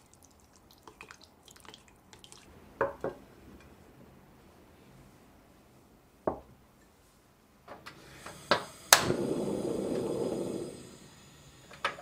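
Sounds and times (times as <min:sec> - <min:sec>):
gas flame rushing: 0:07.9 - 0:12.0.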